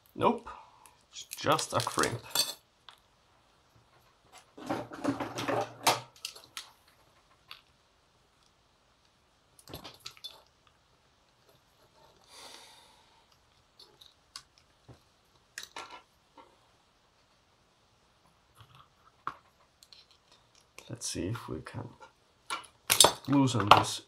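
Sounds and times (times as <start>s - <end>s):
metal parts clicking and tapping: 5.2s - 7.7s, 19.3s - 20.9s, 22.0s - 24.0s.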